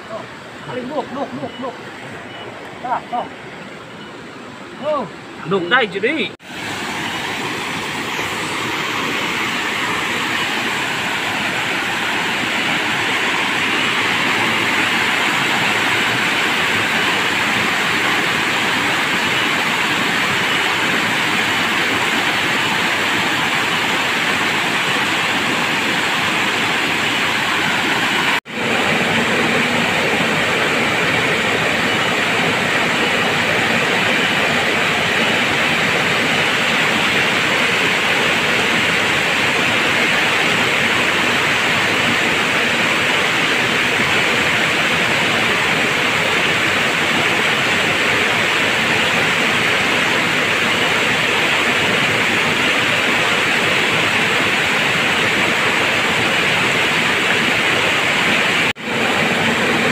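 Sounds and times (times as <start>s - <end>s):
waterfall rushing over rocks: 0.0s - 59.9s.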